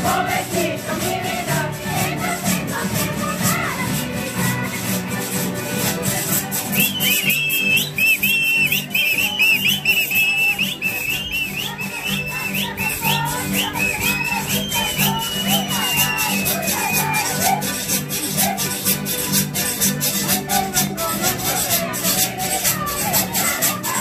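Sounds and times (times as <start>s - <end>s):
shrill whistle rising figure: 6.8s - 17.4s.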